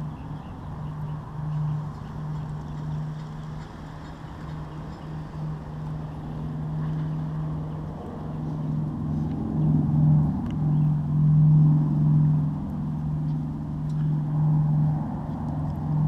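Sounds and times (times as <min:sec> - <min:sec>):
distant piston aircraft engines droning: 0:00.0 - 0:16.0.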